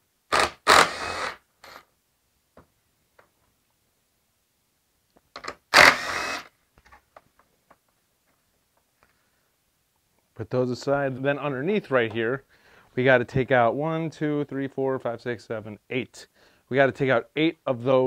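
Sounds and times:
impact driver running: 0:00.3 - 0:01.4, 0:05.8 - 0:06.5.

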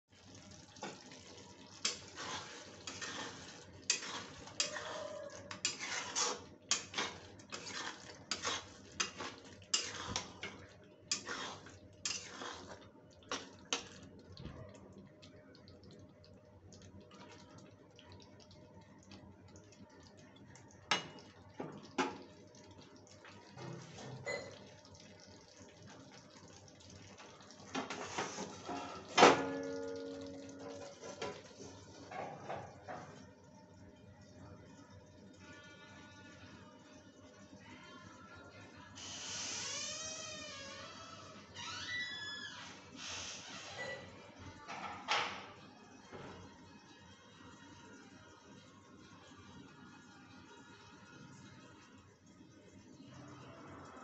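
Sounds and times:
ladle scraping metal pan: 0:01.8 - 0:13.9.

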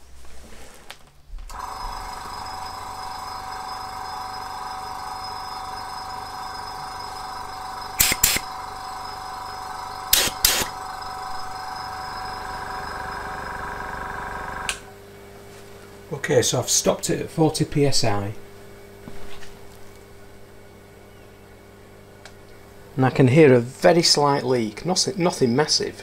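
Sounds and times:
air compressor running: 0:01.5 - 0:15.2.

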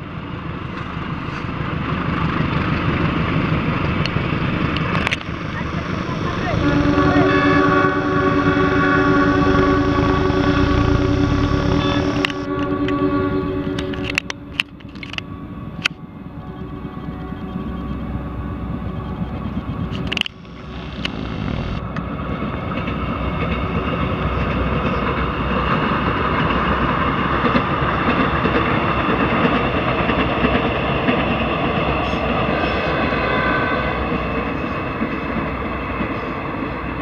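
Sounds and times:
train wheels rumbling on rails: 0:00.0 - 0:37.0
held machine tones: 0:05.3 - 0:12.5, 0:19.0 - 0:21.8.

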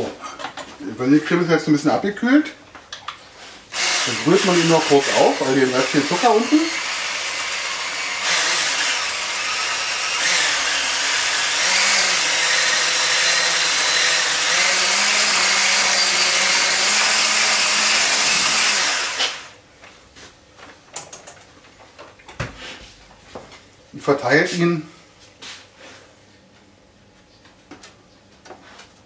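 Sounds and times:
electric mixer running: 0:03.7 - 0:19.5.

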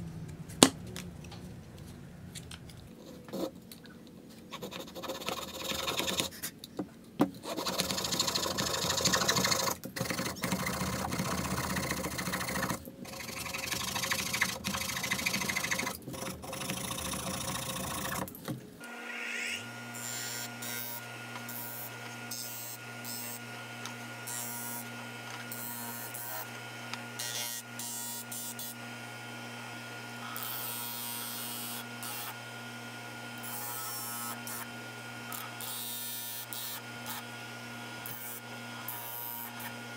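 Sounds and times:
disc sander motor humming: 0:08.5 - 0:27.3.

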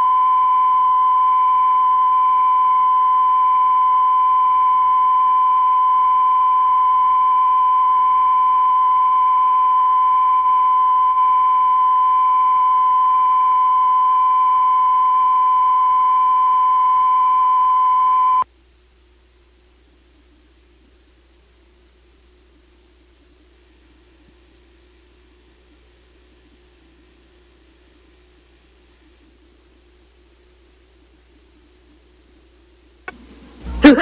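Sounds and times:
steady test tone: 0:00.0 - 0:18.4.

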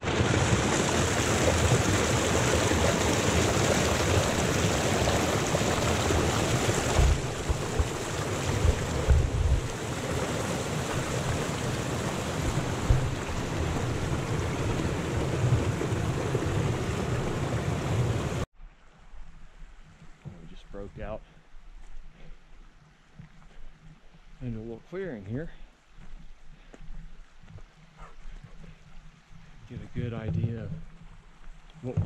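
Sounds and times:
creek rushing over rocks: 0:00.0 - 0:18.5
thumps on microphone: 0:06.9 - 0:09.7, 0:12.8 - 0:13.2, 0:29.7 - 0:30.9.

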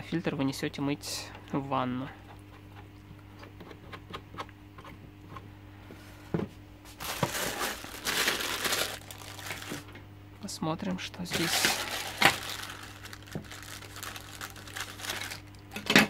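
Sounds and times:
plastic bag crinkling: 0:06.9 - 0:09.9, 0:11.3 - 0:15.9.

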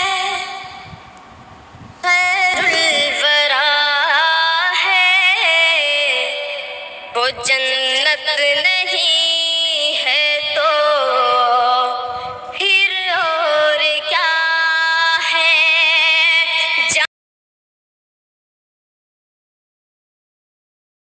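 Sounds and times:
boy singing devotional song: 0:00.0 - 0:01.0, 0:01.9 - 0:17.1.

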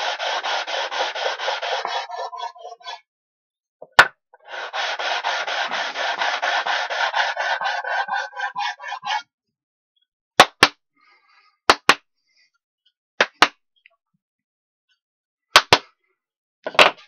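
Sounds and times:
sanding block rubbing wood: 0:00.0 - 0:03.0, 0:04.4 - 0:09.2
sharp slaps or knocks: 0:10.4 - 0:10.8.

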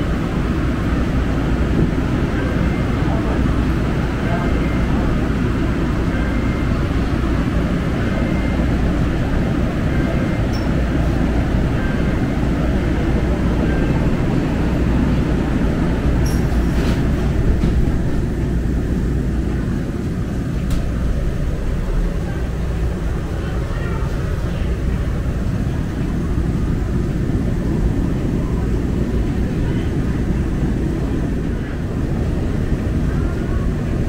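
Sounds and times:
light-rail car rumble: 0:00.0 - 0:34.0
faint short beeps: 0:09.9 - 0:10.9.

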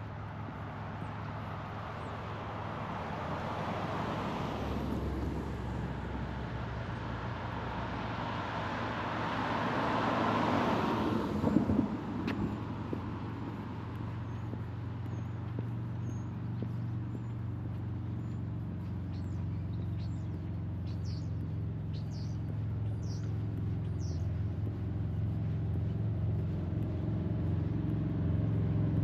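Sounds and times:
low engine hum: 0:00.0 - 0:29.0
vehicle passing: 0:00.0 - 0:29.0.

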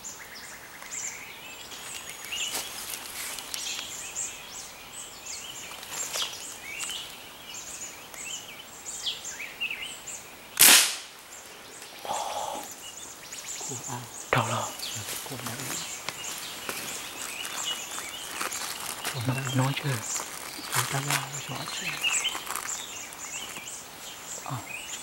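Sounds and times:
small birds chirping: 0:00.0 - 0:25.0
rifle shot: 0:10.6 - 0:11.1.

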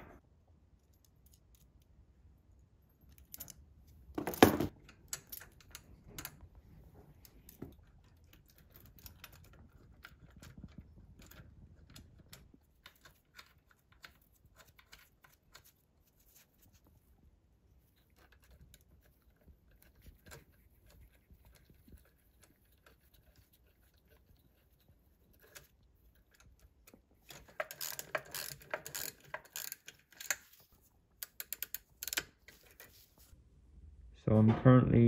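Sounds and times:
small metal parts clicking: 0:25.4 - 0:30.6, 0:31.2 - 0:32.7.

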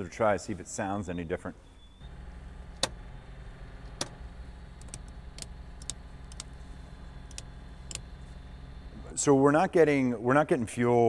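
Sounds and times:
low motor hum: 0:02.0 - 0:10.7
sharp ticks: 0:04.8 - 0:06.6, 0:07.2 - 0:08.1.

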